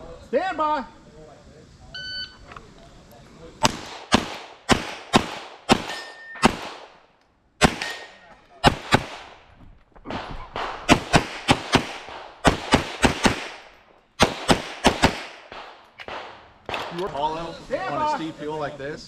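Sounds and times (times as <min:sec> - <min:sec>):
pistol shots: 0:03.6 - 0:07.0, 0:07.6 - 0:09.4, 0:10.1 - 0:17.1.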